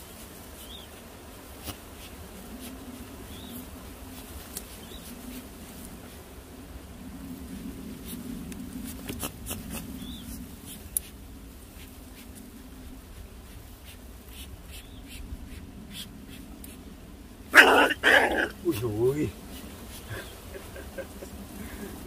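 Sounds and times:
animal yelping: 17.5s - 19.0s.

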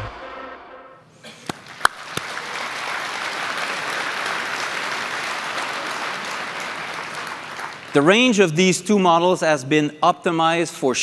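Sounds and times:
audience applauding: 1.4s - 8.1s.

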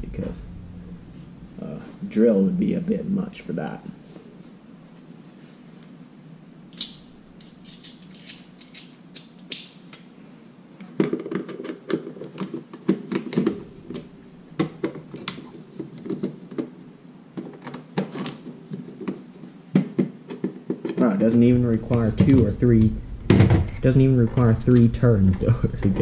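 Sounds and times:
screwdriver clicking and scraping: 6.8s - 9.7s.

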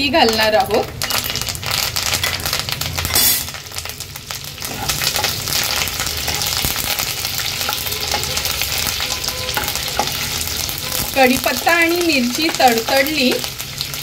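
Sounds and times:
leaves spluttering in hot oil: 0.0s - 14.0s
spatula stirring in oil: 1.0s - 14.0s.

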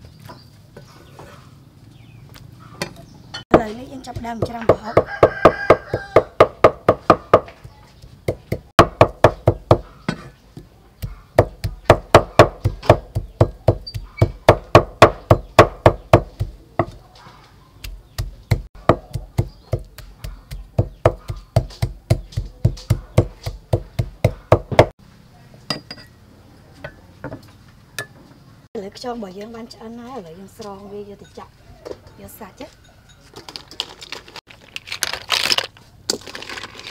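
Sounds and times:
knife chopping on wooden block: 11.0s - 17.0s, 17.8s - 24.9s.

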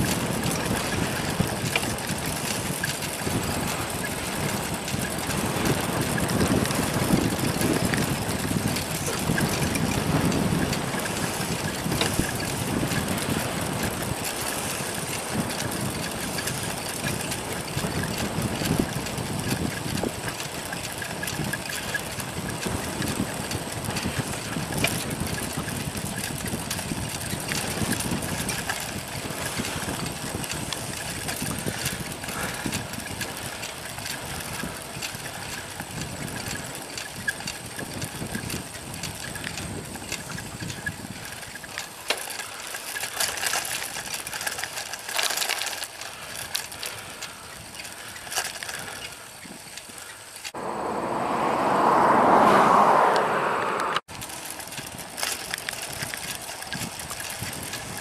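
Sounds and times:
bicycle tyres on asphalt: 0.0s - 58.0s
rushing wind: 0.0s - 58.0s
low rumble: 50.6s - 54.1s.

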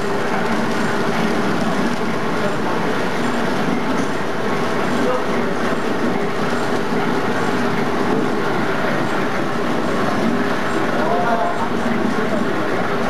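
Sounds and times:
paper bag machine running: 0.0s - 13.0s.

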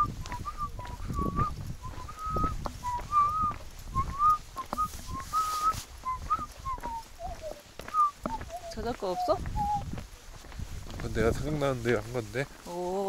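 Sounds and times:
man whistling a tune: 0.0s - 8.7s, 9.5s - 9.8s
wind rumbling on microphone: 0.0s - 12.6s.

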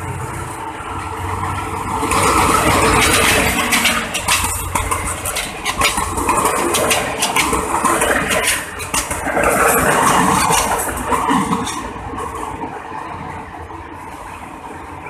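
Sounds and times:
loud rushing noise: 0.0s - 15.0s
train wheels clattering: 0.9s - 12.9s.

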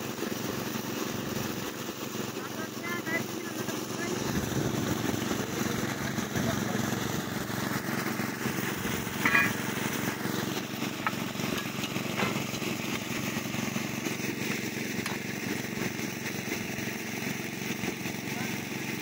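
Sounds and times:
small engine running under load: 0.0s - 19.0s
metal clatter: 9.2s - 9.6s.

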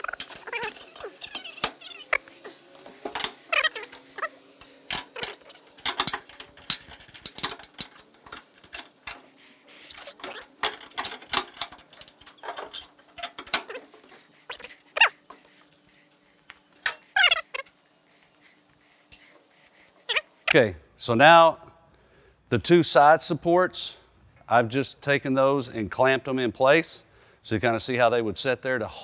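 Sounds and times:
short squeaks: 3.3s - 5.7s, 12.4s - 15.2s, 16.9s - 17.7s
metal clanks and knocks: 4.9s - 9.2s.

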